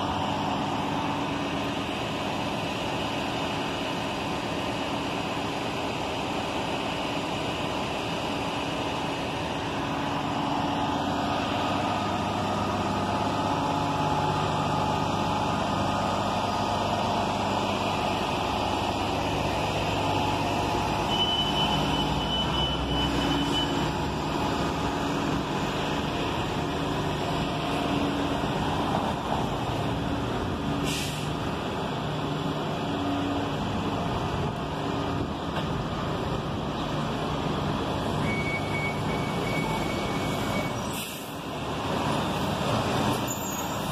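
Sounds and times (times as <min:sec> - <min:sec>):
bus engines humming: 0:00.0 - 0:43.9
air brake hiss: 0:30.8 - 0:31.4, 0:40.8 - 0:41.4.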